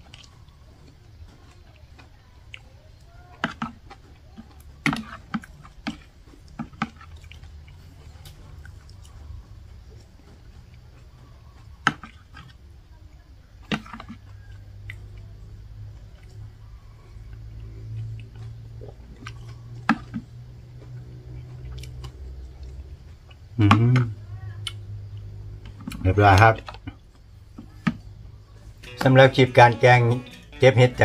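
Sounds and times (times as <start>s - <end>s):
soft slurping and chewing: 0.0s - 12.8s, 13.6s - 23.8s.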